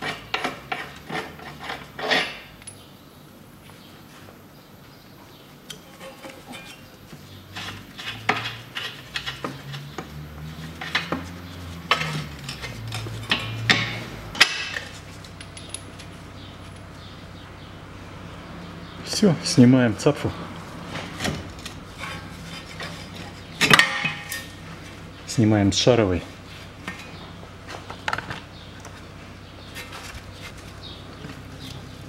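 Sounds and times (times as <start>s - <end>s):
tools clinking on metal: 11.9s - 16.1s.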